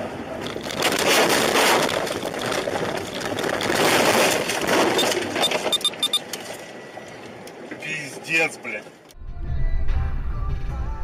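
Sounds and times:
branches and snow scraping car body: 0:00.4 - 0:05.8.

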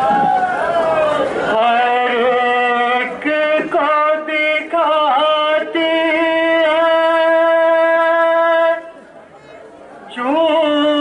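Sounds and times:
man chanting loudly: 0:01.5 - 0:08.9.

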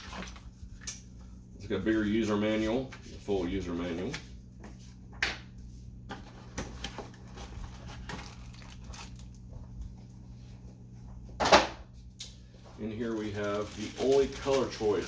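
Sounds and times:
cardboard rustling and scraping: 0:06.1 - 0:09.2.

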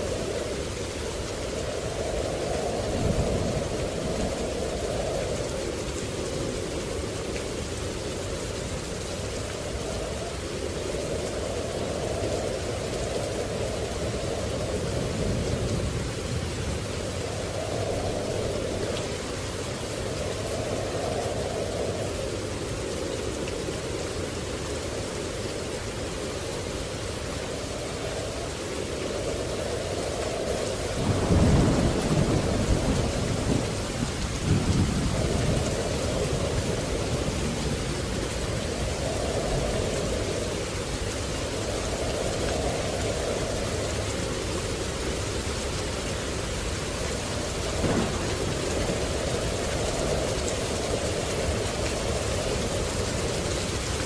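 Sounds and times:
thunder rumbling: 0:00.0 - 0:08.3, 0:27.6 - 0:54.0
steady rain: 0:00.0 - 0:54.0.

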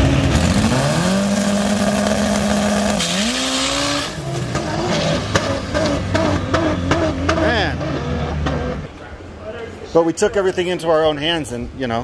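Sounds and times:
turbo car engine revving: 0:00.0 - 0:08.9.

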